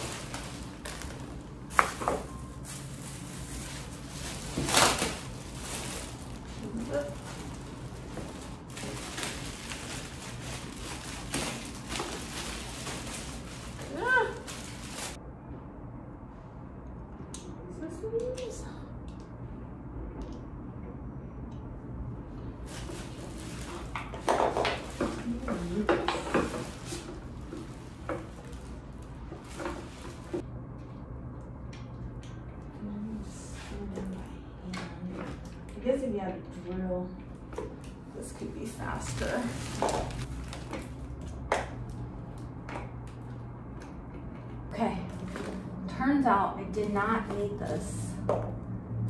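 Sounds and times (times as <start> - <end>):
plastic wrapping crinkling: 0.0 - 15.2, 22.6 - 30.4, 38.2 - 41.4.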